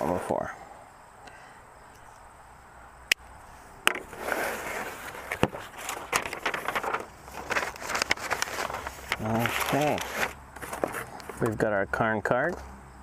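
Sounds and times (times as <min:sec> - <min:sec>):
paper and cardboard rustling: 0:03.9 - 0:11.6.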